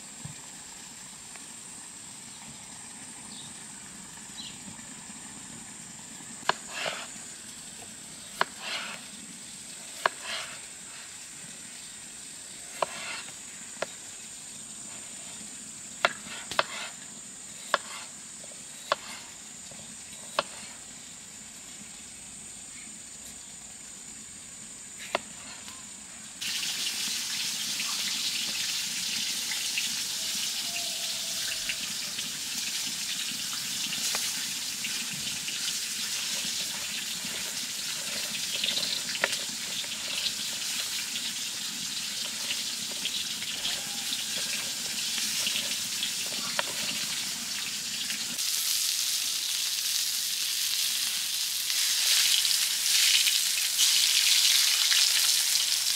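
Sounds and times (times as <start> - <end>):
meat sizzling: 5.8 - 22.6, 26.4 - 55.9
running water: 26.4 - 48.4.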